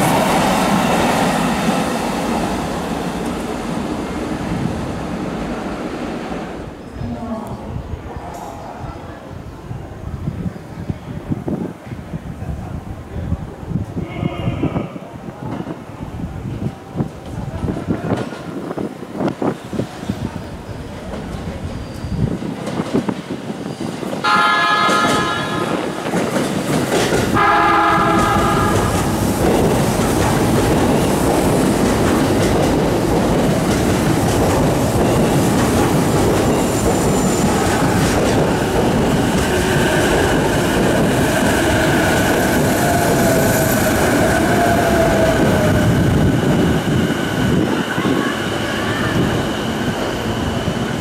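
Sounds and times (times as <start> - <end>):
wheel and rail rumble: 15.2 - 51.0
train horn: 24.2 - 25.9, 27.4 - 29.1.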